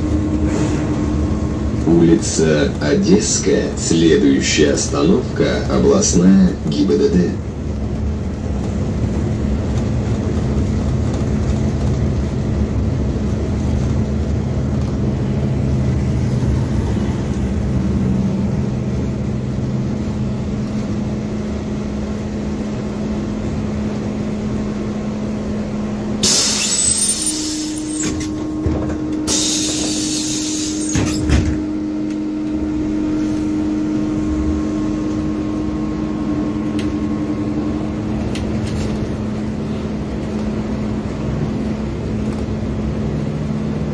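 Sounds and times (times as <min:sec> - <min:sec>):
bus engine droning: 0:00.0 - 0:43.9
compressed air hisses: 0:26.2 - 0:28.0.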